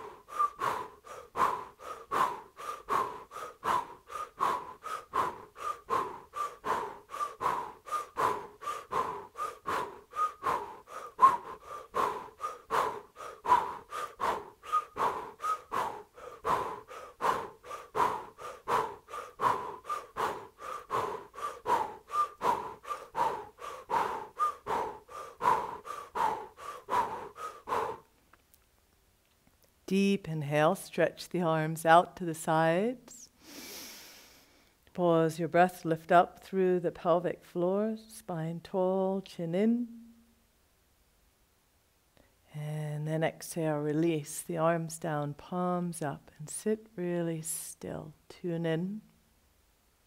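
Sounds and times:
rapid forceful breathing: 0.0 - 28.2, 33.4 - 34.8.

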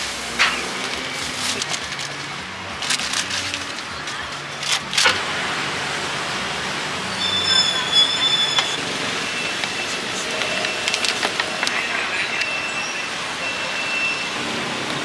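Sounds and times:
wok frying hiss: 0.0 - 1.9.

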